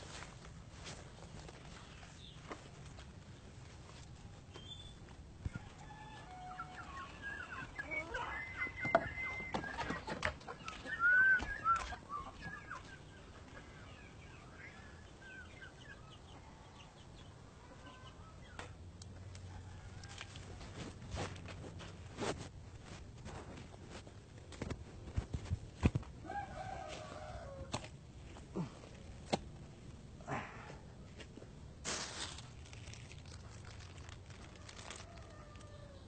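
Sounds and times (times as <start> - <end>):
chickens clucking: 5.6 - 17.0.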